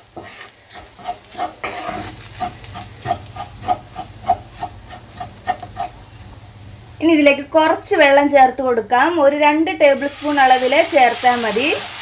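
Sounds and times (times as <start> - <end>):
utensil scraping a frying pan: 0.0 - 6.0
faint sizzle of frying: 0.0 - 12.0.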